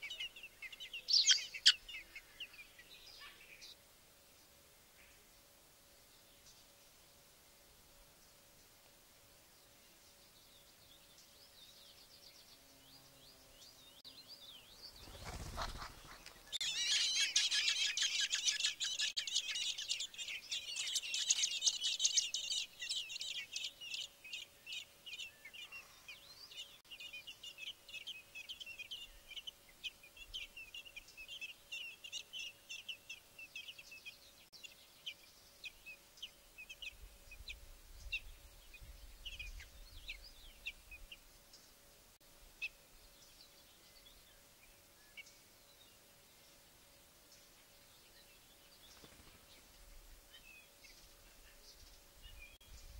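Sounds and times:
nestlings begging calls: 0.0s - 2.5s, 15.2s - 29.5s.

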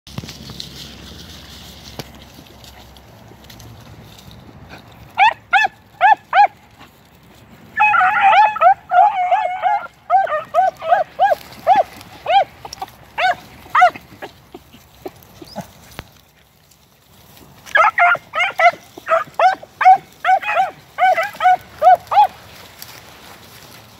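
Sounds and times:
dogs barking: 5.2s - 6.6s, 7.8s - 15.8s, 17.7s - 22.4s.

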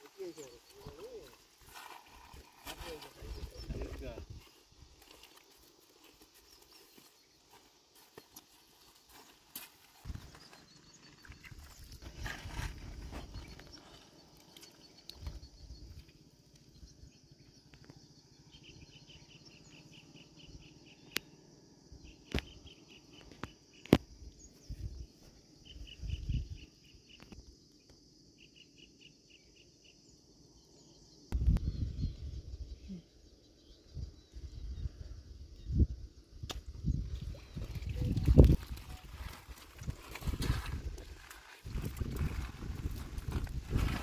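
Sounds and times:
insect trilling: 0.0s - 24.0s, 36.9s - 44.0s.

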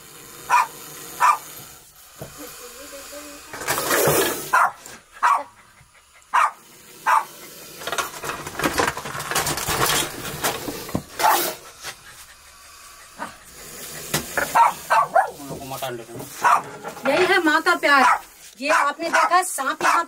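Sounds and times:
dog barking: 0.5s - 1.5s, 4.5s - 5.6s, 6.3s - 7.3s, 11.2s - 11.6s, 14.4s - 15.4s, 16.4s - 16.8s, 17.9s - 20.0s.

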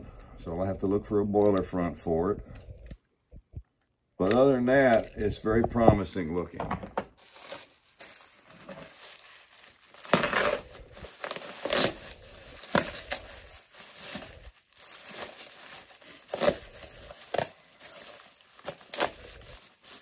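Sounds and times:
bubble wrap crinkling: 7.1s - 20.0s.

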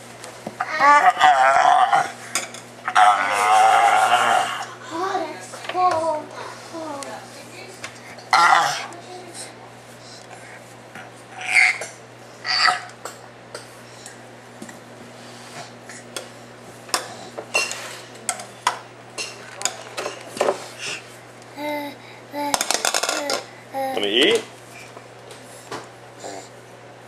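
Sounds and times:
baby vocal sounds: 0.6s - 2.1s, 11.4s - 12.9s, 20.8s - 24.2s
baby squealing: 11.4s - 11.9s.

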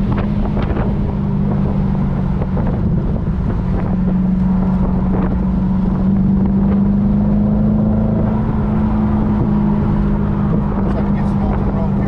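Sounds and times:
car engine drone: 0.0s - 12.0s.

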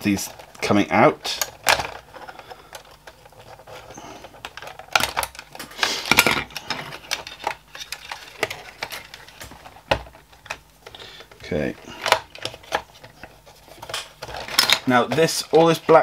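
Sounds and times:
hands handling plastic parts: 0.0s - 16.0s.

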